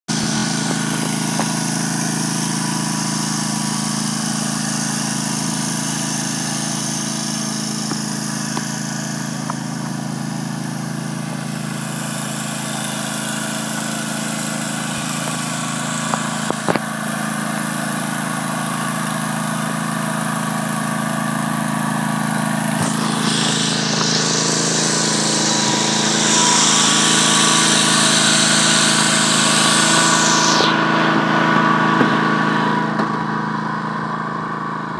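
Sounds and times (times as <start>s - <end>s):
riding mower engine running: 0.0s - 34.9s.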